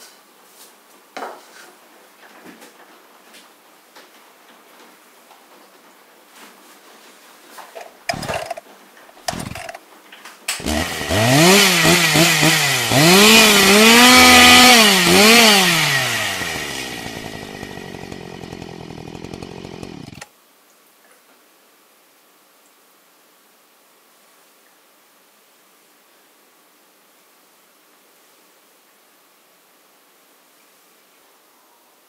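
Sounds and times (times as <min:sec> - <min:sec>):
short bursts of noise: 0:07.7 - 0:08.6, 0:09.2 - 0:09.8
chainsaw engine revving: 0:07.8 - 0:09.8, 0:10.6 - 0:20.3.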